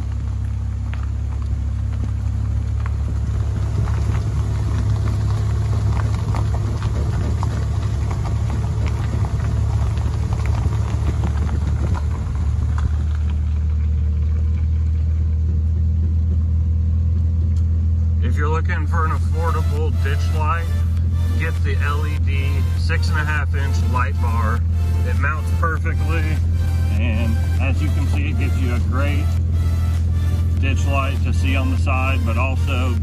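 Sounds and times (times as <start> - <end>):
engine and road drone: 0.0 - 33.0
road surface ticks: 0.0 - 33.0.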